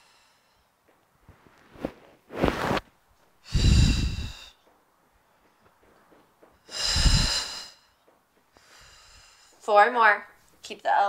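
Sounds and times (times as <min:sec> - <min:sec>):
woman exhaling hard: 0:03.4 - 0:04.6, 0:06.7 - 0:07.8.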